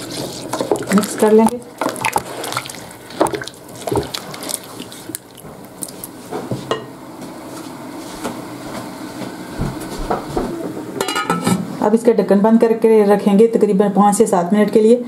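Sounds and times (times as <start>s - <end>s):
spoon stirring in a metal pot: 0.0s - 5.0s
broth bubbling: 0.0s - 6.2s.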